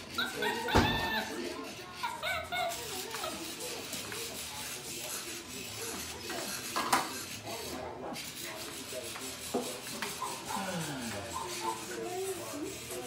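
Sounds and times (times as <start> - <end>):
toy clattering on tile floor: 0.0 - 10.4.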